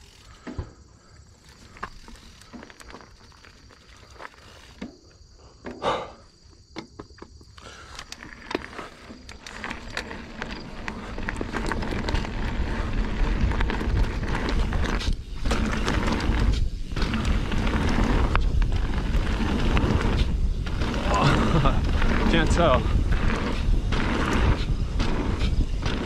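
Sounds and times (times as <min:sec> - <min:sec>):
bike tyre and trail noise: 0:00.0 - 0:26.0
wind rumble on microphone: 0:09.5 - 0:26.0.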